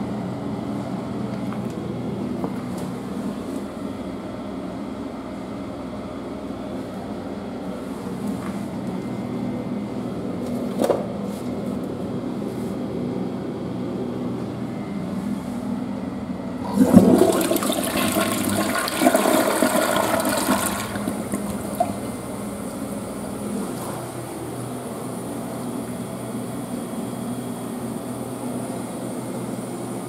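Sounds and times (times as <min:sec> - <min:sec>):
low steady hum: 0:00.0 - 0:30.0
toilet flushing: 0:16.6 - 0:23.8.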